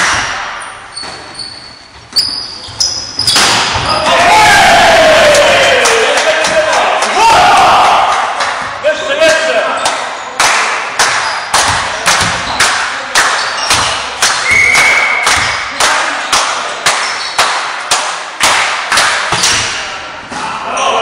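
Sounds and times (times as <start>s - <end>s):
thuds echoing in a hall: 0.0s - 1.3s, 2.0s - 6.9s, 10.9s - 20.8s.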